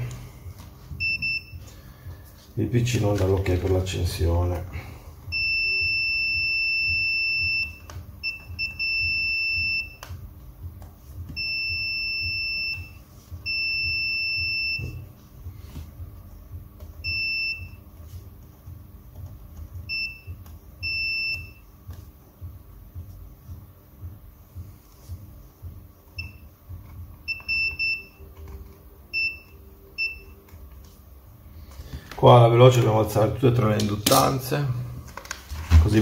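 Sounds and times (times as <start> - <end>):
multimeter beeps: 1.0 - 1.7, 5.3 - 10.2, 11.4 - 15.1, 17.0 - 17.8, 19.8 - 21.7, 26.2 - 26.6, 27.2 - 30.5.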